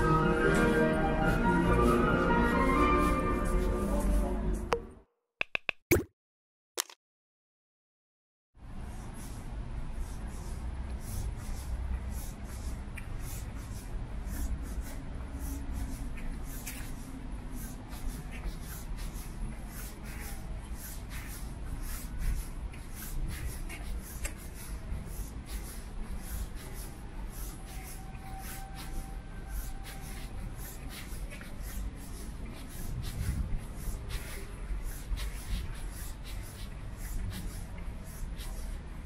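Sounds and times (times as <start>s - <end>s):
city ambience rumble: 8.6s - 39.0s.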